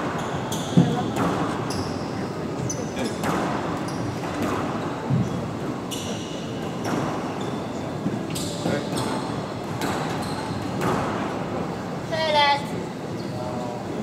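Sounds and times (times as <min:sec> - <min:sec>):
shoes squeaking on wooden floor: 0:00.0 - 0:11.1
squash ball hitting racquets and walls: 0:00.0 - 0:11.7.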